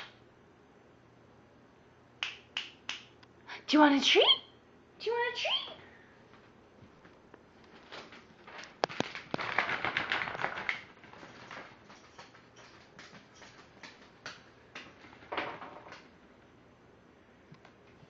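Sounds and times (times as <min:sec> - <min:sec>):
dog shoes clicking on parquet: 0:07.7 - 0:15.3.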